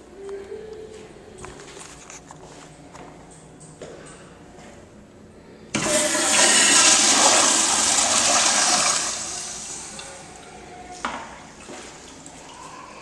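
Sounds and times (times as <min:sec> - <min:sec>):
toilet refill hiss: 0:05.8 - 0:10.1
toilet flushing: 0:05.8 - 0:10.5.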